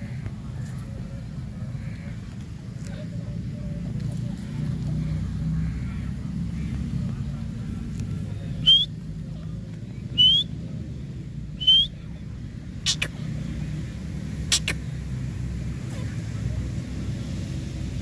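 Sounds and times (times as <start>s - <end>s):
bird whistled call notes: 8.6s - 8.9s, 10.1s - 10.5s, 11.6s - 12.0s
sharp clicks: 12.9s - 13.2s, 14.5s - 14.8s.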